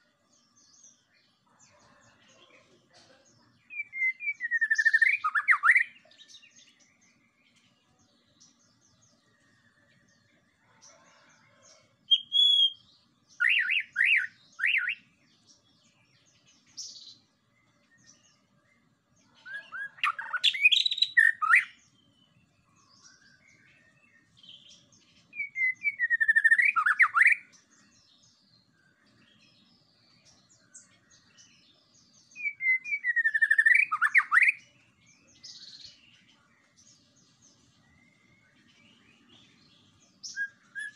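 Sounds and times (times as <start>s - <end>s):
bird singing whistled notes: 3.6s - 7.6s, 12.1s - 15.2s, 15.8s - 40.9s.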